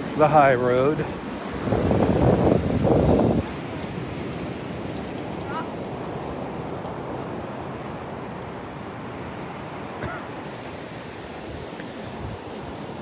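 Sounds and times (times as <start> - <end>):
surf washing: 0.0 - 13.0
wind on microphone: 1.4 - 9.7, 11.3 - 13.0.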